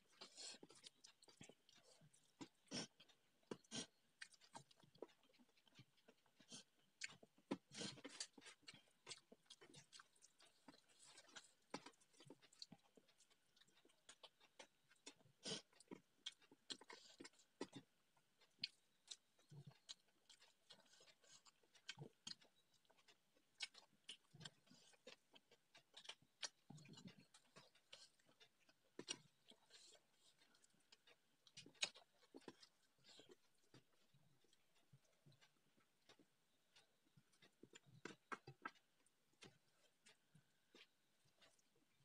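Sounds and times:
wet chewing and mouth clicks: 0.0s - 42.0s.

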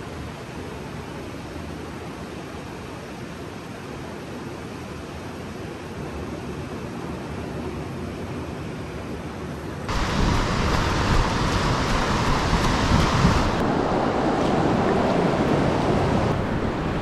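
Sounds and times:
wind buffeting microphone: 9.9s - 17.0s.

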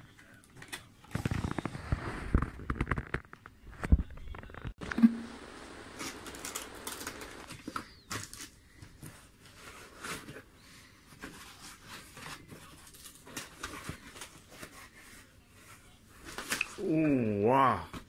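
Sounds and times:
foam and cardboard rustling: 6.0s - 17.0s.

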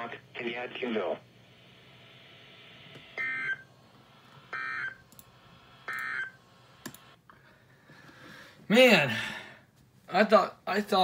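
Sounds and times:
receiver hiss: 0.0s - 7.2s.

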